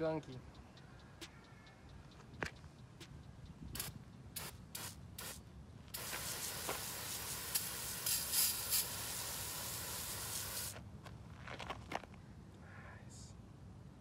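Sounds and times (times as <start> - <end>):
spray nozzle hissing: 3.8 - 10.8.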